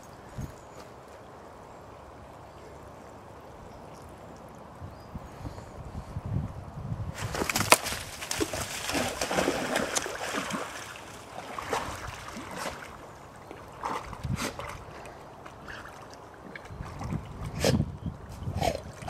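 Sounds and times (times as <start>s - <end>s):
dog splashing in water: 7.2s - 14.9s.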